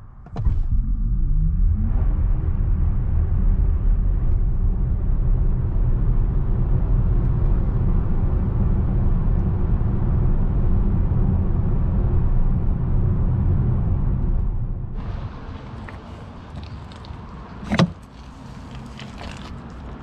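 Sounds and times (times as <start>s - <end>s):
tyre and road noise: 0.0s - 20.0s.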